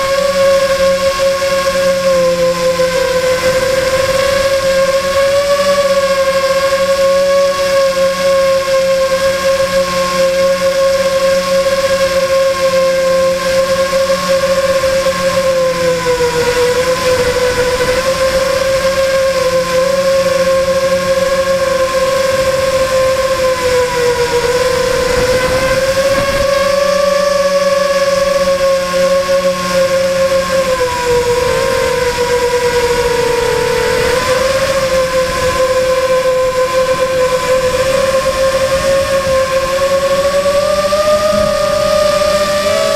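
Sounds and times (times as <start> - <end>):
model aircraft motor whine: 0.0 - 42.9.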